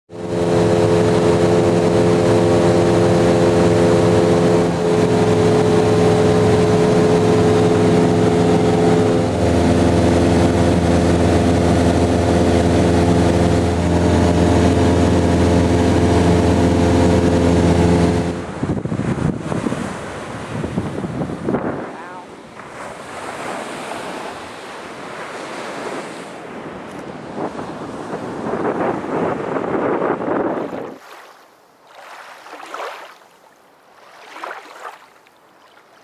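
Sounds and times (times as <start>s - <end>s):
deeper hum: 0.1s - 19.2s
light aircraft engine droning: 0.1s - 36.0s.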